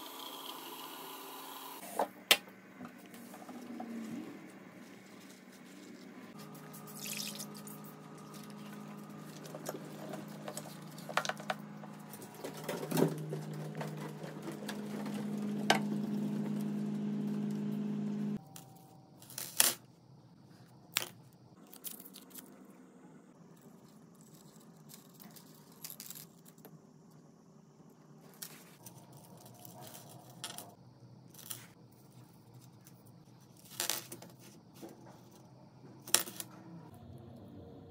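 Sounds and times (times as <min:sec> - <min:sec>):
steady low hum: 0:02.5 - 0:19.2.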